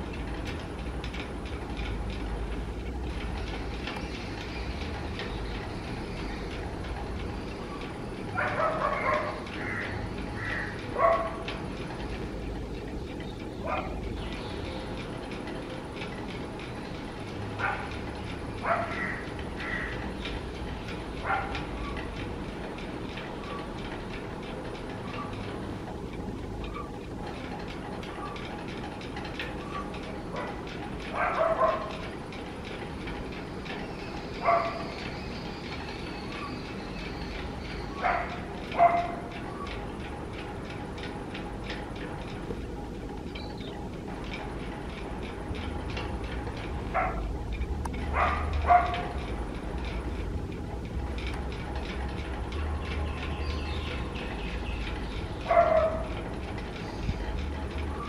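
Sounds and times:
low background rumble: 0.0 - 58.0
dog barking: 8.4 - 9.4, 11.0 - 11.4, 13.7 - 14.0, 18.6 - 19.1, 31.2 - 31.9, 34.4 - 34.9, 38.0 - 39.3, 47.0 - 47.2, 48.1 - 49.1, 55.5 - 56.1.

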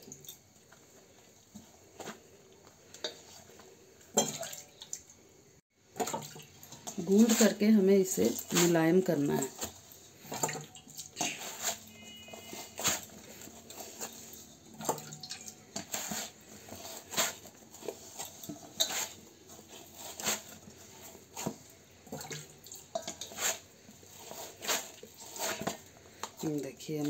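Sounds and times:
dough slapping and squelching: 5.9 - 27.0.

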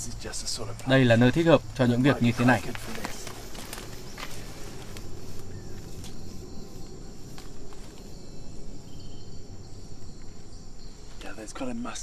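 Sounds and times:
insects chirring: 0.0 - 12.0
leaves rustling and crackling: 0.8 - 9.1.

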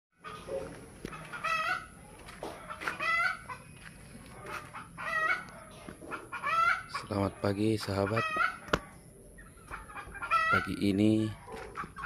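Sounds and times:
rooster calling: 4.4 - 5.5, 7.8 - 9.0.

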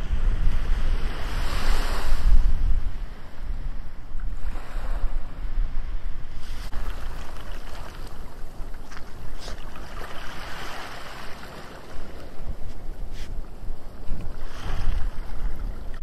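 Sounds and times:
wind rumbling on microphone: 0.0 - 16.0
waves washing over pebbles: 6.4 - 12.5.

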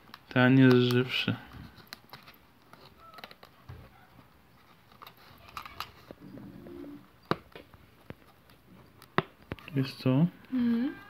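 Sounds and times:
plastic container clicks and crinkles: 0.0 - 6.2.

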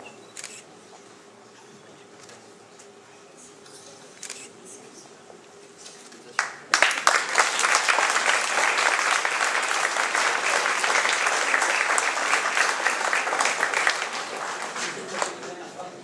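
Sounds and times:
audience applauding: 6.4 - 16.0.

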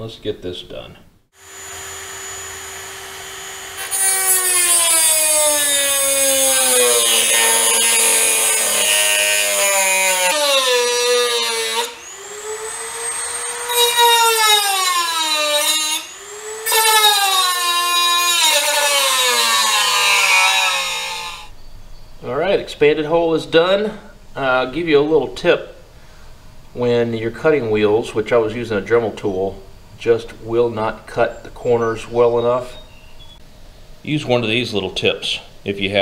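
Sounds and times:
rotary tool motor whine: 1.4 - 8.2, 9.2 - 21.5.

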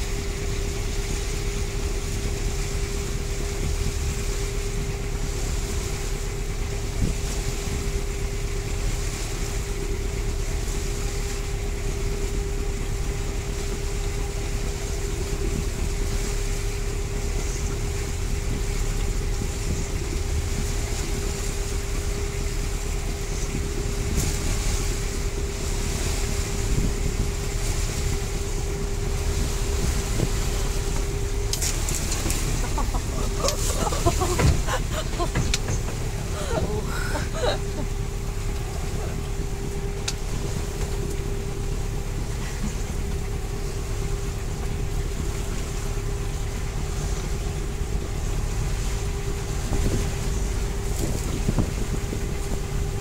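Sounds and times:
boat engine drone: 0.0 - 53.0
churning wake: 0.0 - 53.0
wind buffeting microphone: 11.5 - 53.0.

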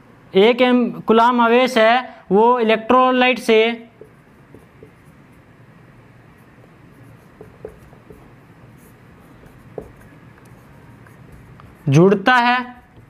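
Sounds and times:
marker scratching on whiteboard: 3.7 - 13.0.

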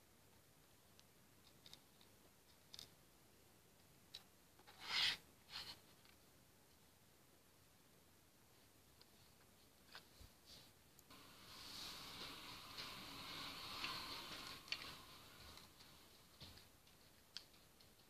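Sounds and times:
small plastic clicks: 1.0 - 3.0
rustling scrape: 4.6 - 5.9, 10.1 - 16.3.

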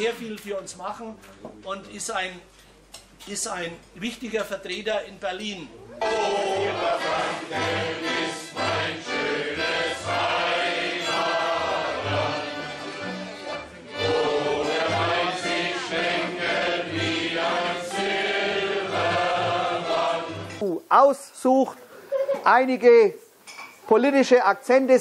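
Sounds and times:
crowd singing together: 6.0 - 20.6.

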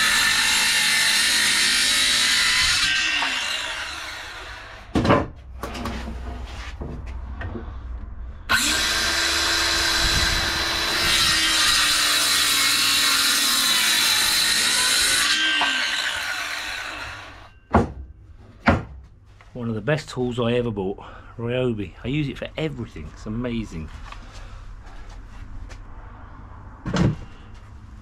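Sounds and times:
circular saw whining: 0.0 - 4.9, 8.5 - 17.7.

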